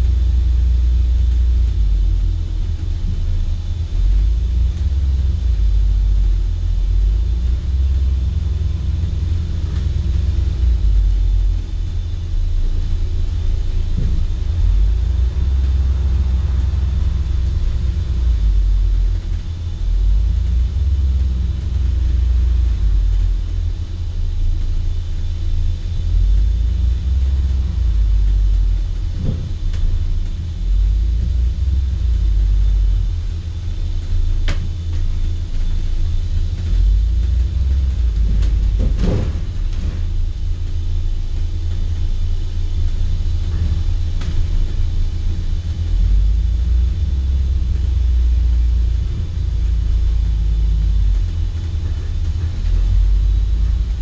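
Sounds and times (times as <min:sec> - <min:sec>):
bus engine and road rumble: 0:00.0 - 0:54.0
knocks and rattles: 0:36.8 - 0:40.3.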